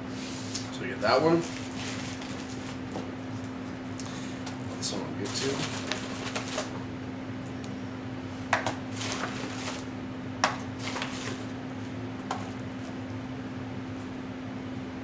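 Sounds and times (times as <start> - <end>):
packaging rustling: 1.4 - 3.0, 5.2 - 6.8, 8.6 - 9.9, 10.8 - 11.5.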